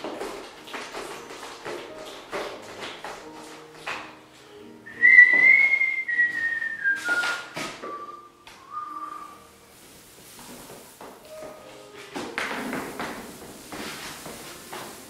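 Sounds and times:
person whistling a slow tune: 4.8 - 9.5.

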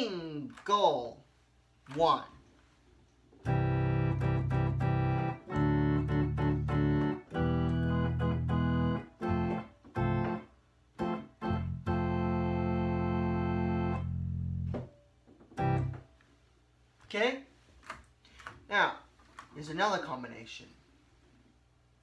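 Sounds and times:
electronic organ chords: 3.4 - 16.1.

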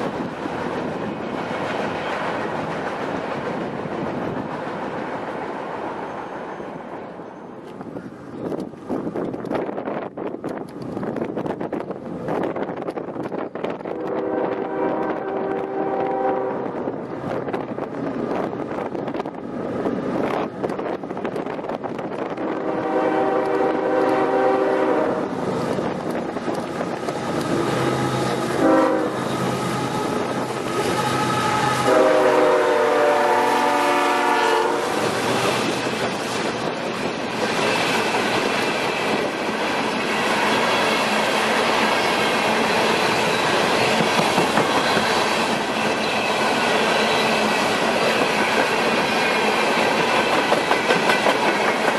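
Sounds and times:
train horn blasts: 13.9 - 16.8, 22.4 - 25.4, 27.4 - 35.1
freight cars rumbling and clacking: 25.3 - 28.6, 35.0 - 51.9.

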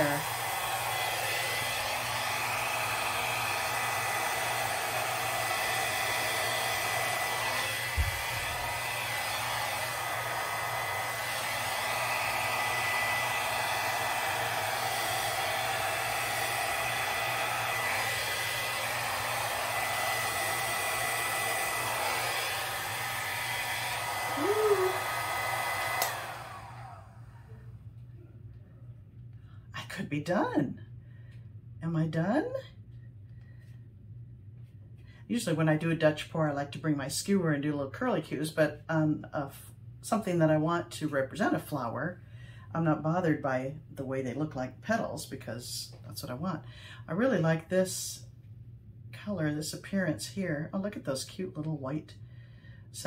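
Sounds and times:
hair dryer running: 0.0 - 27.7.

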